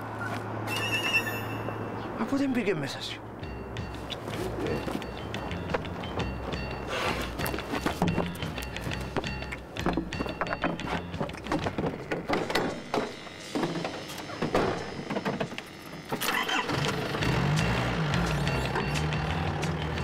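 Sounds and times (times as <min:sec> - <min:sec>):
truck engine starting and running: 0:03.8 - 0:20.0
tools knocking and clattering: 0:07.4 - 0:15.7.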